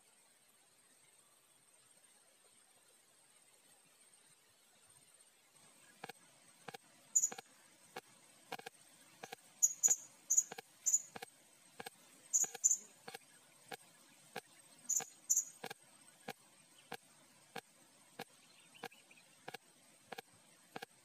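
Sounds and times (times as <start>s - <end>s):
parrot chirping: 7.2s - 7.4s, 9.6s - 11.2s, 12.3s - 12.9s, 14.9s - 15.6s.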